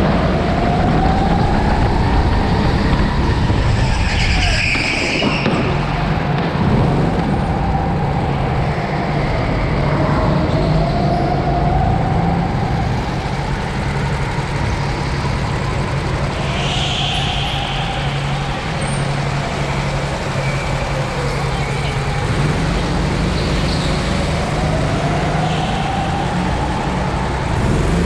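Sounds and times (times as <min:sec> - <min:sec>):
go-kart motors droning: 0:00.0 - 0:28.0.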